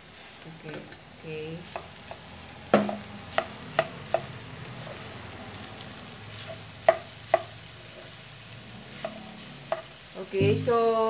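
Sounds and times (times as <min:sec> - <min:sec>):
faint sizzle: 0:00.0 - 0:11.0
spatula stir-frying rice: 0:00.0 - 0:11.0
spatula knocking frying pan: 0:01.6 - 0:04.4, 0:06.4 - 0:07.6.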